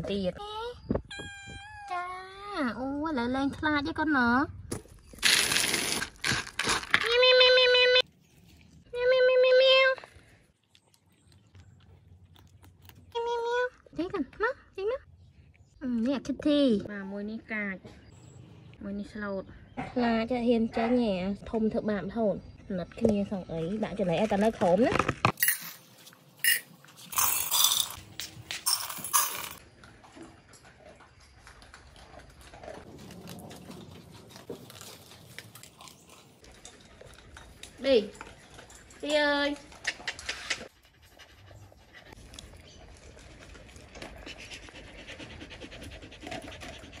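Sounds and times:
dogs eating from bowls: 23.0s - 47.0s
dry kibble poured into metal bowls: 26.4s - 28.0s, 28.6s - 29.6s
dog panting: 40.0s - 47.0s.

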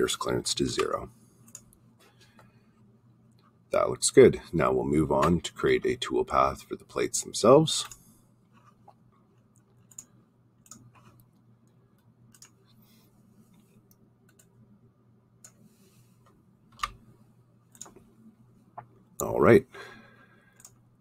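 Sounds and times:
low steady hum: 0.0s - 21.0s
computer mouse clicking: 0.8s - 1.8s, 8.6s - 12.8s, 13.5s - 14.6s, 16.2s - 17.0s, 17.7s - 18.1s, 20.5s - 20.9s.

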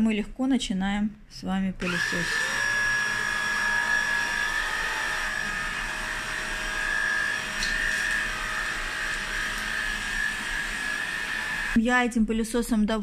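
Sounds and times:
stick vacuum running: 1.8s - 11.8s.

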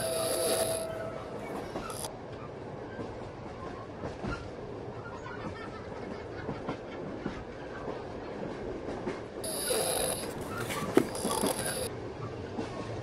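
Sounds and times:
train rumbling on rails: 0.0s - 13.0s
wheels clicking and knocking: 9.4s - 11.9s.

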